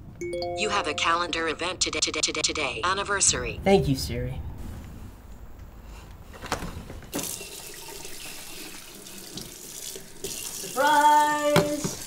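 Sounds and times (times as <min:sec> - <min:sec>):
faucet water running into sink: 0:07.2 - 0:12.0.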